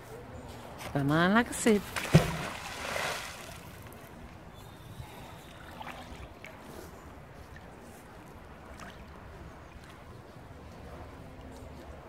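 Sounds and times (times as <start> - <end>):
faint lapping water: 1.8 - 12.0
magnet splashing into water: 1.9 - 3.8.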